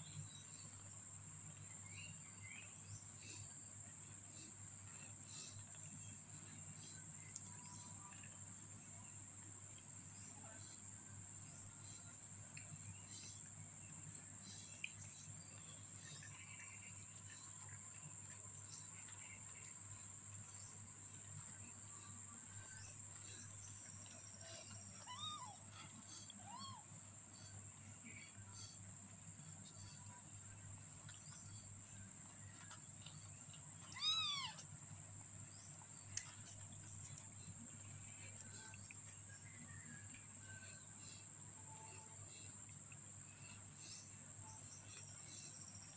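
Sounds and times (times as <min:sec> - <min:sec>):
soft ticks: 0:07.2 - 0:07.5, 0:36.1 - 0:37.3.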